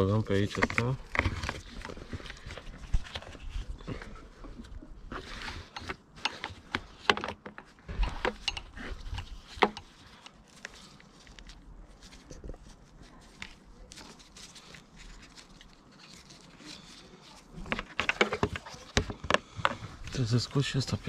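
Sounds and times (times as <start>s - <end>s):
clicks taps and rustling: 5.6s - 11.5s, 17.6s - 19.9s.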